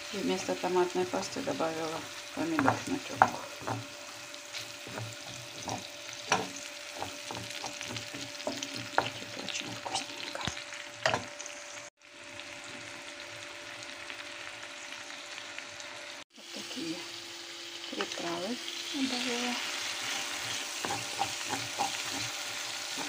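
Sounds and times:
vegetables sizzling in oil: 0:00.0 - 0:23.0
wooden spatula knocking pan: 0:02.4 - 0:04.0, 0:04.8 - 0:10.1.

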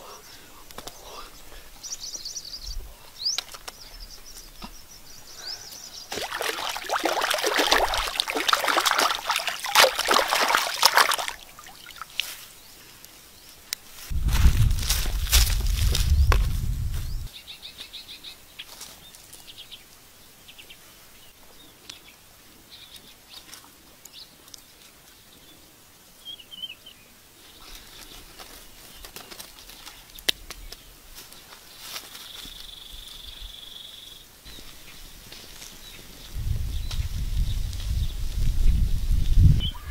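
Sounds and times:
bare feet thumping on straw: 0:06.1 - 0:12.2, 0:14.1 - 0:17.1.

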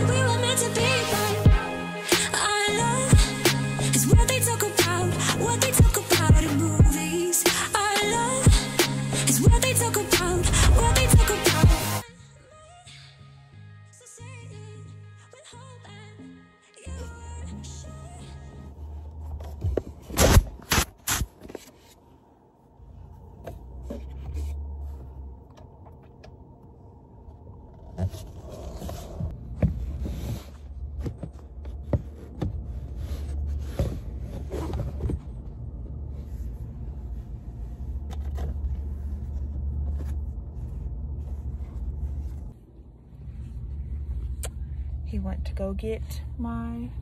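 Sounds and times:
low car cabin rumble: 0:09.5 - 0:12.0, 0:22.6 - 0:47.0.

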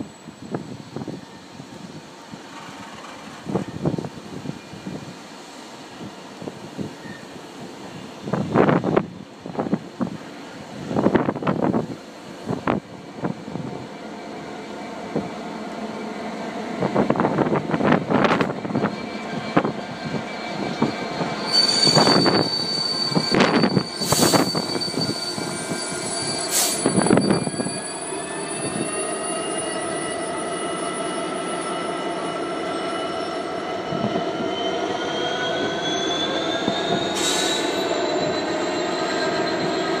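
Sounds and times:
train wheel squeal: 0:06.8 - 0:08.1, 0:13.6 - 0:40.0
locomotive engine running with whine: 0:13.9 - 0:40.0.

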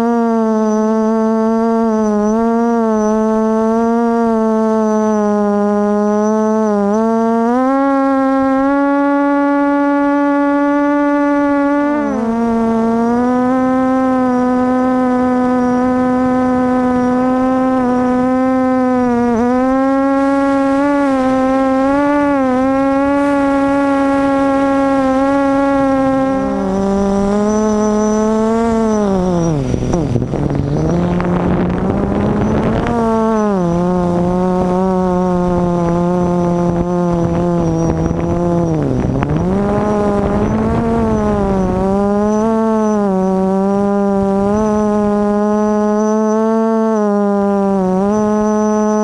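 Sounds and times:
quadcopter motors whining: 0:00.0 - 0:49.0
rush of air: 0:19.9 - 0:34.7.

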